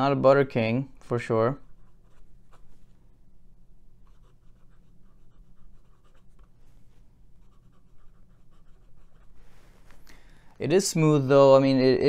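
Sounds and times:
fountain pen scratching on paper: 0:04.0 - 0:06.5, 0:07.4 - 0:09.4.

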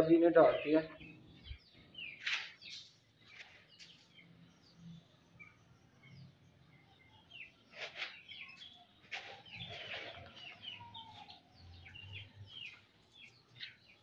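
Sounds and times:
chicks peeping: 0:07.3 - 0:14.0
grain feed rustling: 0:09.0 - 0:10.6.

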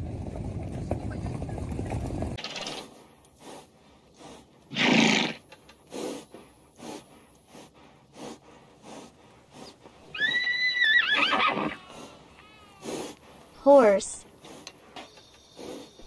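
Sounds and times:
horse snorting: 0:01.5 - 0:16.0
horse puffing breath: 0:02.6 - 0:10.5, 0:11.1 - 0:16.0
horse whinnying: 0:04.7 - 0:05.4, 0:10.1 - 0:13.0.

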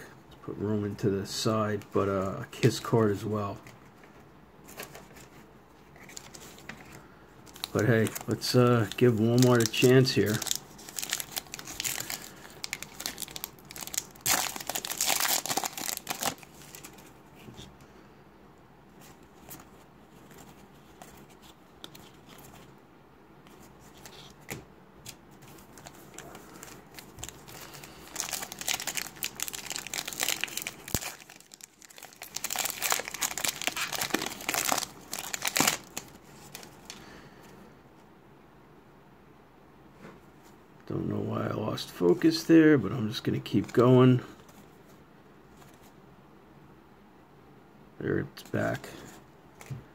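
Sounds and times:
foil wrapper crinkling: 0:07.5 - 0:17.1, 0:25.6 - 0:37.0.

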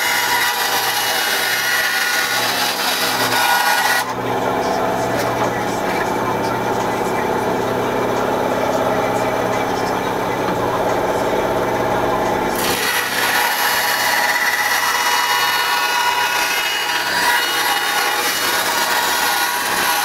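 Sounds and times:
saw blade rasping through plastic: 0:00.0 - 0:04.1
bandsaw motor hum: 0:00.0 - 0:20.0.

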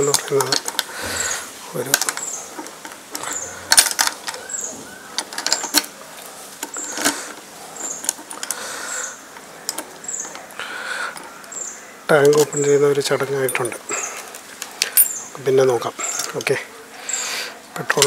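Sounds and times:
bird chirping: 0:00.0 - 0:17.9
key rattling in a lock: 0:01.9 - 0:05.9, 0:13.4 - 0:14.0, 0:14.8 - 0:15.2.

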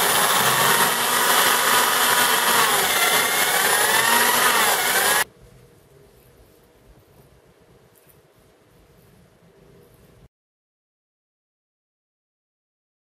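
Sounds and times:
drill bit squeal: 0:00.0 - 0:05.2
electric drill cutting metal: 0:00.0 - 0:05.2.

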